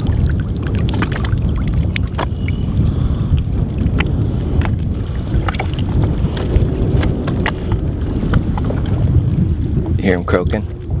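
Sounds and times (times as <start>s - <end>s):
fish croaking: 0.0s - 8.0s
wind rumble on microphone: 0.0s - 11.0s.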